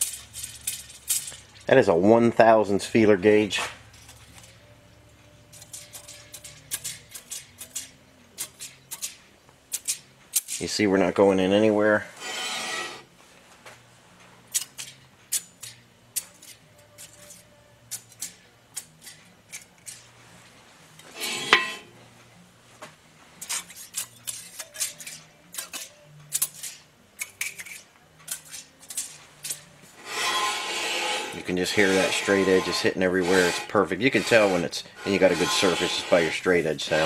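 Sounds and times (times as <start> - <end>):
metal straightedge clicking on metal: 5.6 - 10.6, 23.4 - 29.7.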